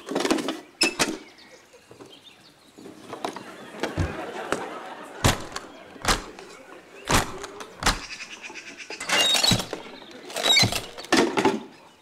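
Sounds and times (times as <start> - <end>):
metal case clacks and knocks: 5.2 - 6.5, 7.1 - 8.3, 9.0 - 11.6
fishing tackle clattering: 5.2 - 8.4, 9.0 - 11.2.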